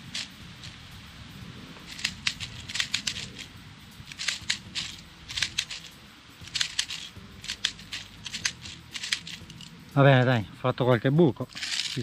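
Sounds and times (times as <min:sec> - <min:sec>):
bbs clicking into pistol magazine: 0:01.9 - 0:03.5, 0:04.1 - 0:05.9, 0:06.5 - 0:09.7.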